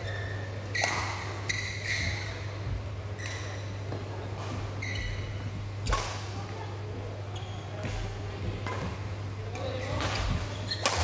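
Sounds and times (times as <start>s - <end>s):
shoes squeaking on court: 0.0s - 5.6s, 7.3s - 8.1s, 9.6s - 11.0s
racket hitting shuttlecock: 5.8s - 6.3s, 9.8s - 11.0s.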